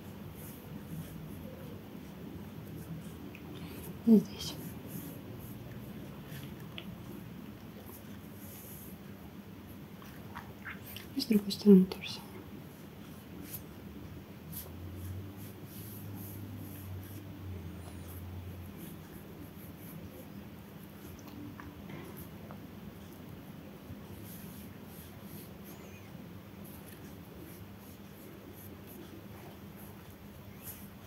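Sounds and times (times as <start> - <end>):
low room hum: 0.0 - 31.0
paintbrush scratching on paper: 0.1 - 7.2, 7.8 - 9.0, 12.6 - 13.8, 14.5 - 21.2, 24.0 - 26.0, 26.6 - 31.0.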